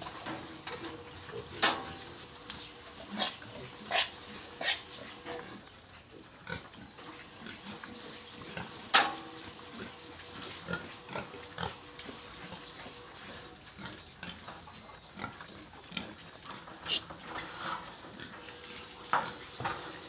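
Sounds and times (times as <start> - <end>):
piglets grunting and eating: 0.0 - 20.0.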